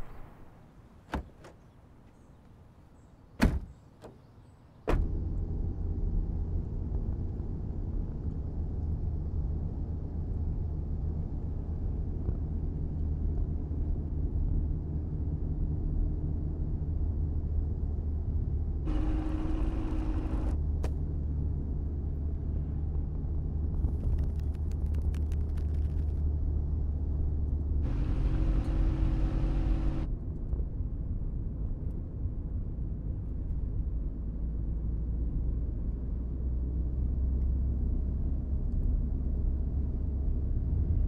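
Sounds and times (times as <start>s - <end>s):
car door shutting: 3.4s - 4.2s
car driving rumble from cabin: 17.6s - 20.6s, 21.3s - 30.1s.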